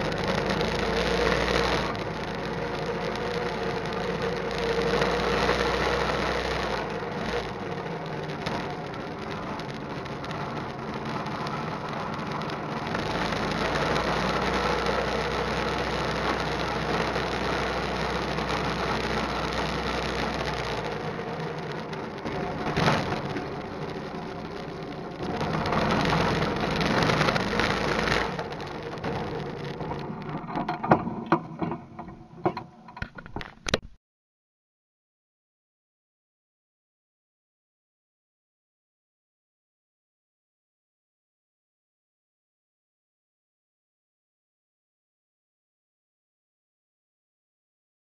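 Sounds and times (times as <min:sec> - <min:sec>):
go-kart engine running: 0:00.0 - 0:32.6.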